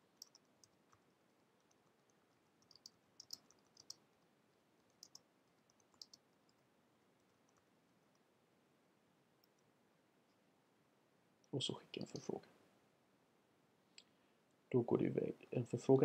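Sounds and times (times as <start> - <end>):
keyboard typing: 0.0 - 4.0, 4.8 - 6.6.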